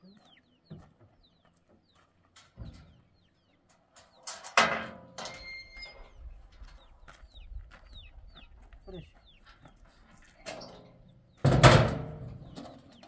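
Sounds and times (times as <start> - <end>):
small birds chirping: 0.0 - 4.5, 5.4 - 11.5, 12.3 - 13.0
metal tailgate clatter: 2.4 - 3.1, 3.9 - 5.7, 11.4 - 13.0.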